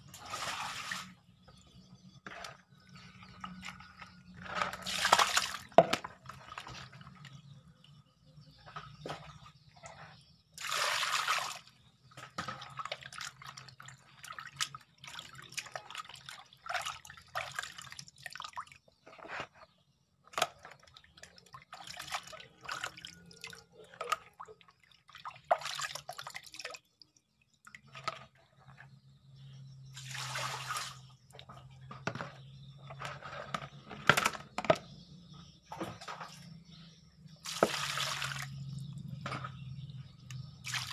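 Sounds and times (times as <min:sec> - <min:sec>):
water pouring: 0:00.0 - 0:01.2, 0:04.4 - 0:07.4, 0:10.6 - 0:11.8, 0:29.9 - 0:31.2, 0:37.4 - 0:40.9
water sloshing and splashing: 0:00.0 - 0:40.9.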